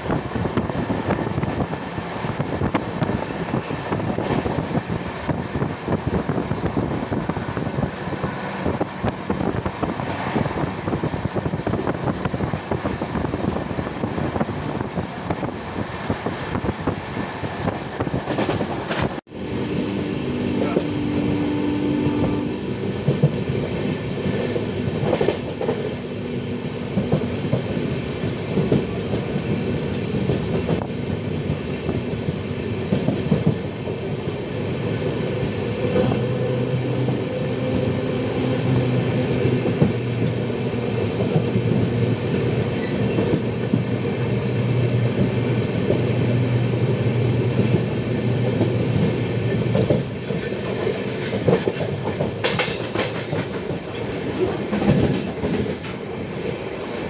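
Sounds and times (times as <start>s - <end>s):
train coaches rumbling: 0.0s - 57.0s
wheels clacking over rail joints: 47.6s - 56.5s.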